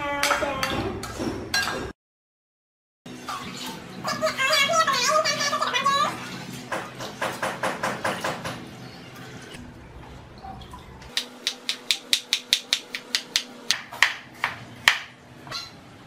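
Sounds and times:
knife chopping on wooden board: 11.2s - 15.2s.

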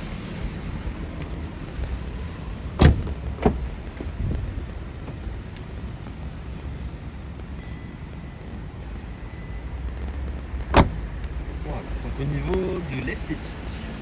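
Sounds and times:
car door shutting with thud: 2.8s - 3.6s, 10.7s - 11.0s.

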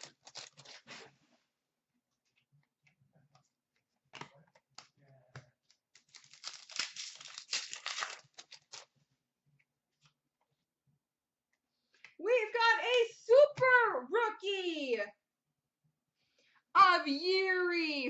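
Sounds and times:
foil wrapper tearing and crinkling: 0.0s - 0.9s, 5.9s - 8.9s.

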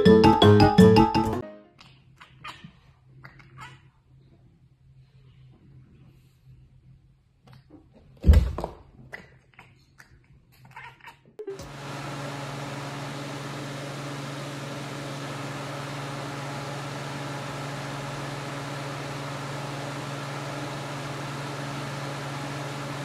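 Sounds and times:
fan motor hum: 11.6s - 23.0s.

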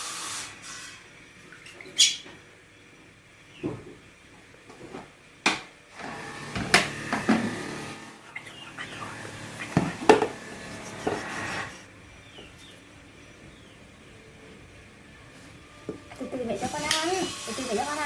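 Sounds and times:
rustling and scraping: 9.6s - 11.9s
ceramic bowl set on concrete: 9.7s - 11.7s.

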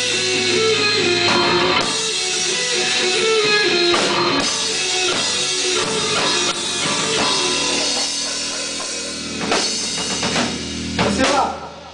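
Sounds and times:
heavy rock band playing: 0.0s - 11.9s
sharp drum hit: 3.9s - 11.5s.

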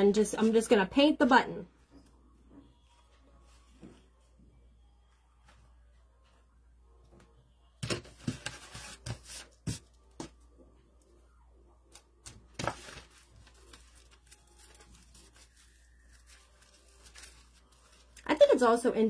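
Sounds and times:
hands rustling craft supplies: 11.9s - 18.3s.

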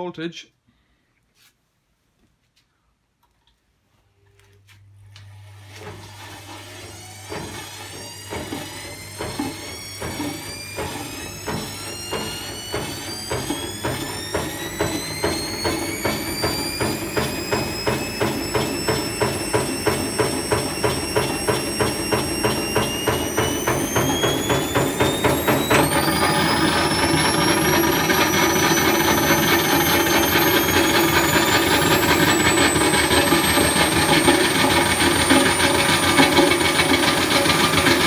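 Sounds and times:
electric motor whining: 6.0s - 38.0s
dryer drum knocking: 7.3s - 38.0s.

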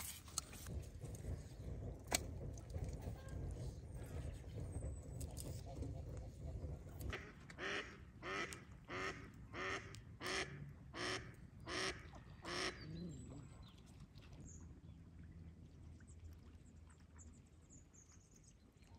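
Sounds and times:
duck quacking: 7.1s - 12.8s.

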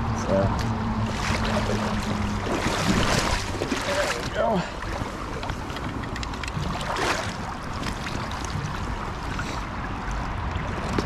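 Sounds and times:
creek water flowing: 0.3s - 11.0s
water splash: 1.0s - 9.6s.

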